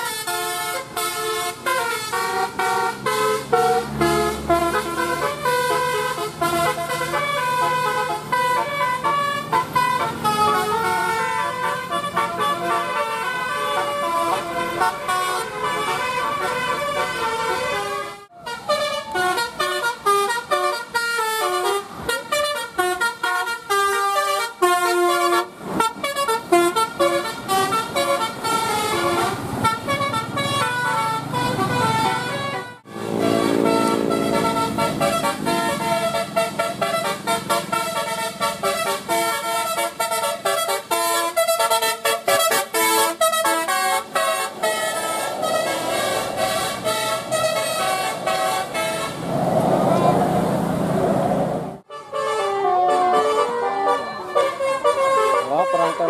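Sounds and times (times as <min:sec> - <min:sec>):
musical air horns playing tunes: 0:00.0 - 0:50.2, 0:51.8 - 0:56.0
bus engines running: 0:00.0 - 0:56.0.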